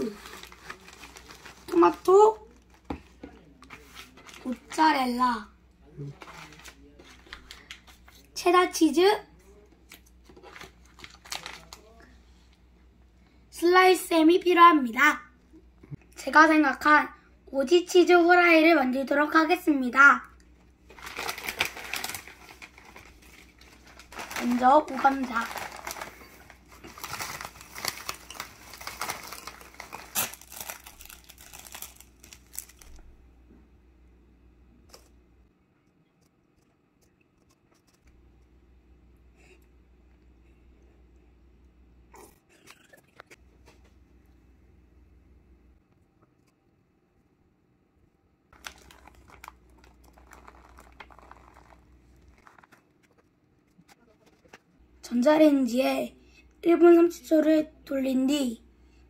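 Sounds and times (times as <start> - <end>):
snack bag crinkling: 0.0 - 2.8, 10.0 - 11.9, 20.9 - 33.1, 48.6 - 54.6.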